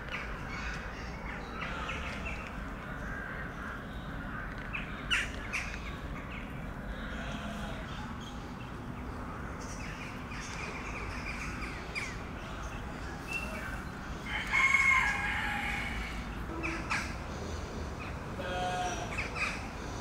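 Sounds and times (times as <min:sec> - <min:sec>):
rooster crowing: 0:14.3 - 0:16.2.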